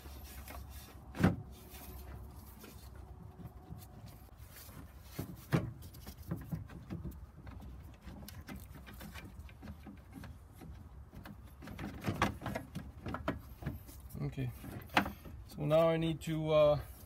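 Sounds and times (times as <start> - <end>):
clicks and knocks of plastic parts: 5.1 - 15.5.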